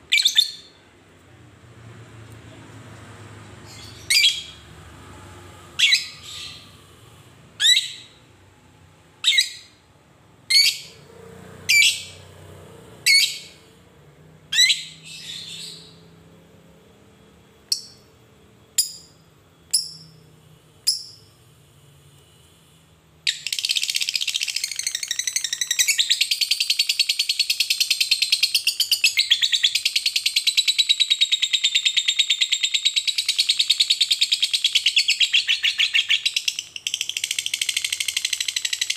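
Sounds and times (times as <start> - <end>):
bird giving high-pitched calls: 7.6 - 8.2.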